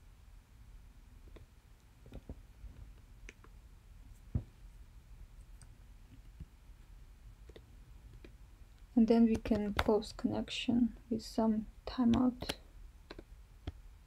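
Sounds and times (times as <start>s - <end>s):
keyboard and mouse clicks: 9.3s - 10.0s, 12.0s - 13.8s.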